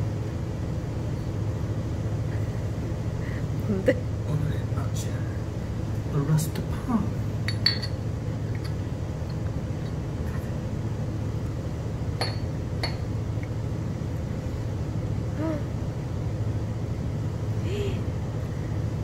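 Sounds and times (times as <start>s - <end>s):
steady low hum: 0.0s - 19.0s
glass clinking: 7.4s - 8.0s, 12.2s - 13.1s.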